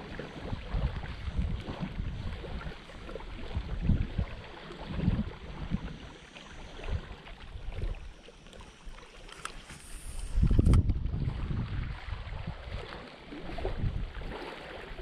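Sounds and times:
wind buffeting microphone: 0:00.0 - 0:06.1, 0:09.9 - 0:15.0.

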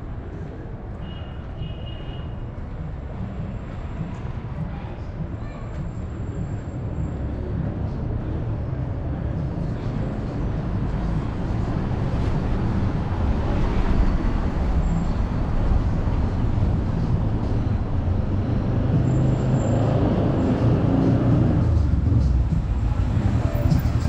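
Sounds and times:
vehicles driving past: 0:00.0 - 0:24.0.

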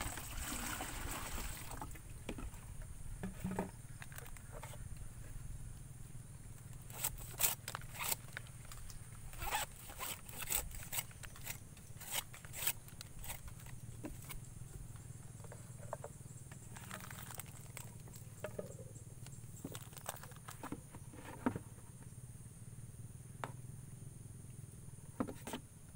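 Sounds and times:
knife scraping cuts on stalk: 0:09.4 - 0:13.4.

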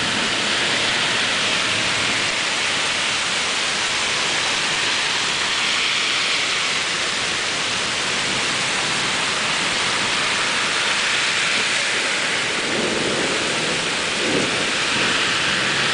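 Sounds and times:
heavy rain pouring: 0:00.0 - 0:15.9
thunder rumbling: 0:08.0 - 0:15.9.

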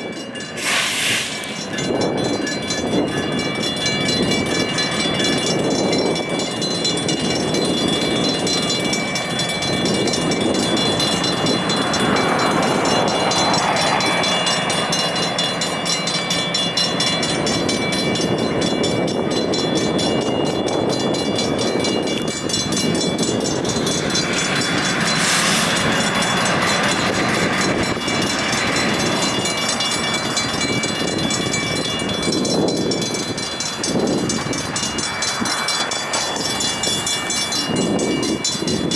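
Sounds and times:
diesel locomotive engine running: 0:00.0 - 0:38.9
railroad crossing bell ringing: 0:00.0 - 0:38.9
short sharp hiss: 0:00.6 - 0:01.4.

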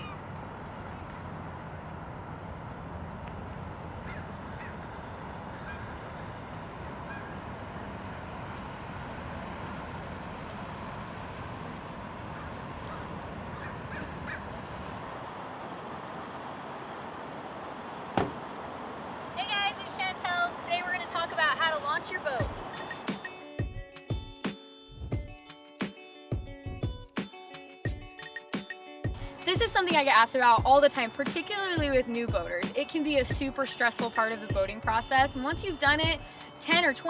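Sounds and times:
truck engine rumble: 0:00.0 - 0:23.2
crow caws: 0:04.0 - 0:04.8, 0:12.3 - 0:14.4.

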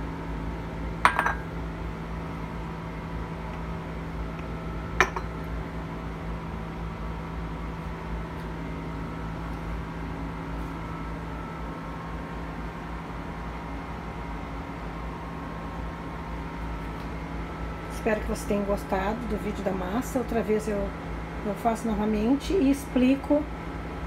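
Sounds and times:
steady low hum: 0:00.0 - 0:24.0
ceramic tableware clinking: 0:01.1 - 0:01.5, 0:05.0 - 0:05.3.

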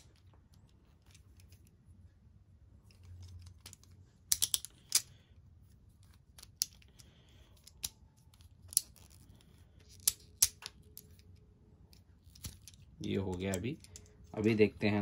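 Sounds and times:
plastic parts clicking together: 0:02.9 - 0:05.2, 0:06.0 - 0:11.3.

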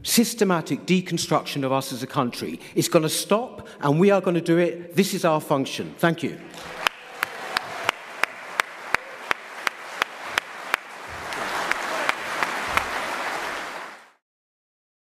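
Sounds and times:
audience applauding: 0:06.4 - 0:14.2
close single person clapping: 0:06.5 - 0:14.2.

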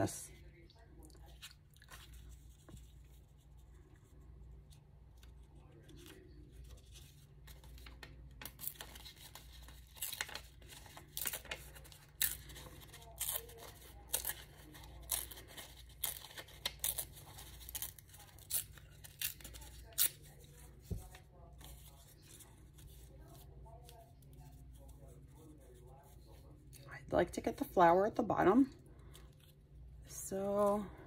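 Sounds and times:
paper rustling: 0:01.2 - 0:26.5
paper tearing: 0:08.4 - 0:21.0.

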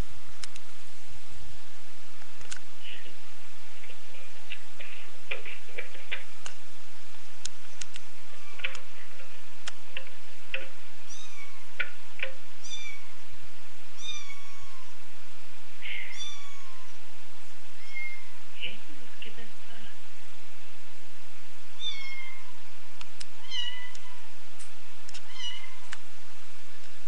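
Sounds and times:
kitten meowing: 0:08.2 - 0:08.7, 0:11.1 - 0:11.7, 0:12.6 - 0:13.2, 0:14.0 - 0:14.9, 0:16.0 - 0:17.0, 0:17.8 - 0:18.3, 0:21.8 - 0:22.5, 0:23.4 - 0:24.2, 0:25.3 - 0:25.9.

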